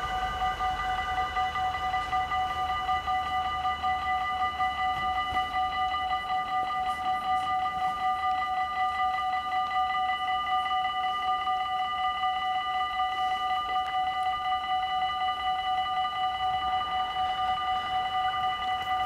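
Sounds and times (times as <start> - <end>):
level crossing warning bell: 0.0 - 19.0.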